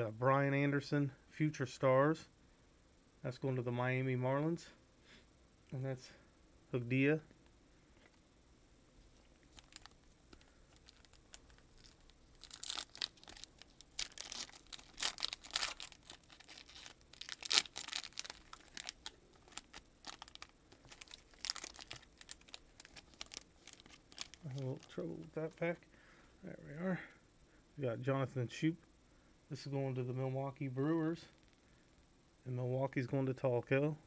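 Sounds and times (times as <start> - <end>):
foil wrapper tearing and crinkling: 9.5 - 25.0.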